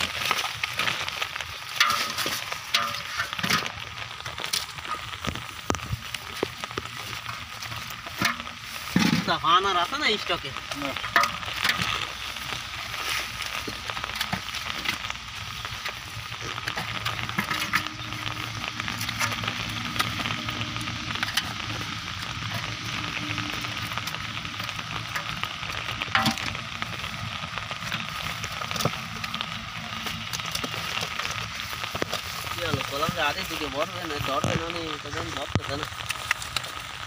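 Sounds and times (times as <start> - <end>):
fish flapping and splashing: 0.0 - 9.3, 10.4 - 37.0
wet fishing net rustling: 11.2 - 34.2.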